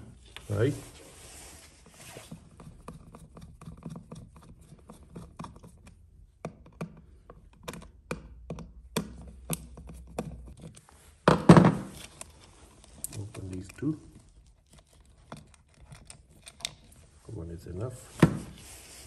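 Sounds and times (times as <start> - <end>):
screwdriver clicking and tapping: 5.3 - 10.3
plastic and wire handling: 9.3 - 19.0.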